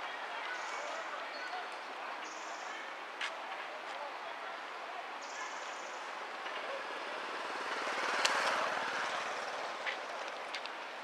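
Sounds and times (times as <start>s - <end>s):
outdoor background noise: 0.0s - 11.0s
motor engine passing by: 6.3s - 10.4s.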